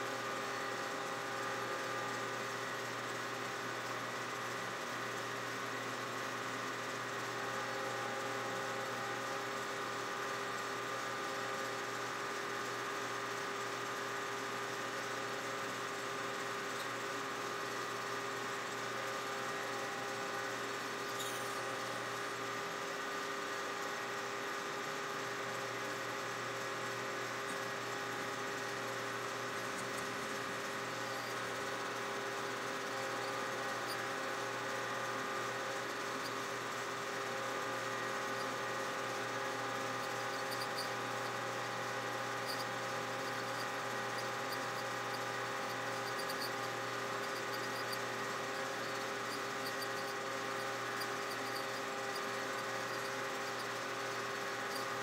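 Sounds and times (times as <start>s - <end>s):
metal lathe milling: 27.4s - 55.0s.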